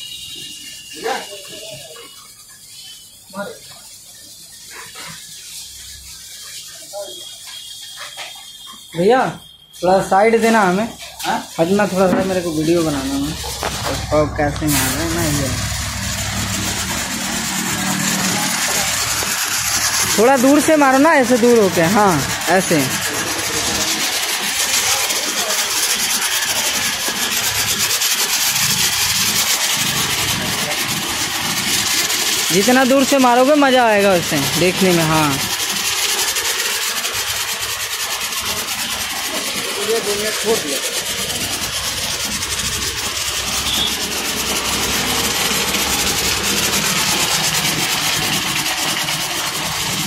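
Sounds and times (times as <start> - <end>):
pressure washer spraying water: 0.0 - 50.0
low hum: 12.9 - 20.2.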